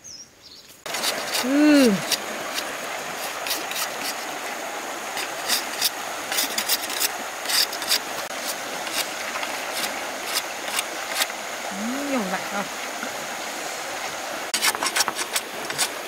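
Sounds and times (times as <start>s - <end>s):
stream rushing: 0.8s - 16.0s
machete scraping bamboo: 0.9s - 4.3s, 5.1s - 11.3s, 14.6s - 16.0s.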